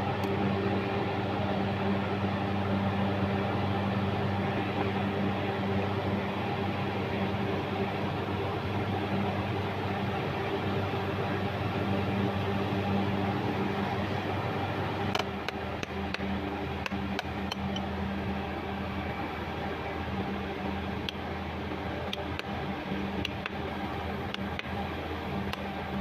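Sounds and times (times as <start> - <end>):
steady mechanical hum: 0.0 - 26.0.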